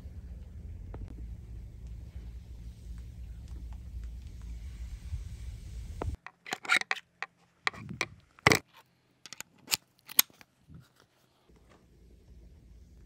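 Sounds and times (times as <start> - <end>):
metal and plastic fitting clicks: 9.3 - 10.3.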